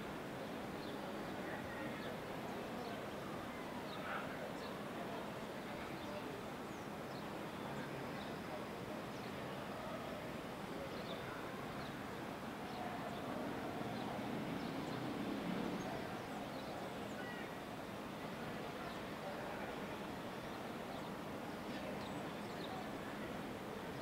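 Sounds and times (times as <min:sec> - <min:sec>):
town noise murmur: 0:00.0 - 0:24.0.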